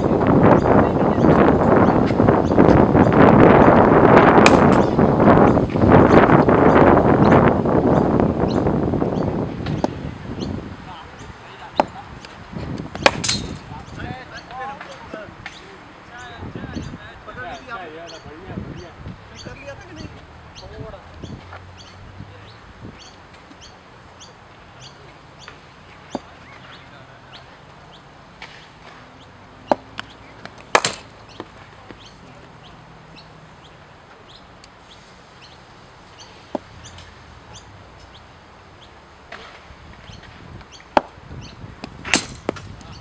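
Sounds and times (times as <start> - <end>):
birds chirping: 0.0 - 43.0
cricket ball knocks: 12.9 - 13.6, 29.6 - 31.5.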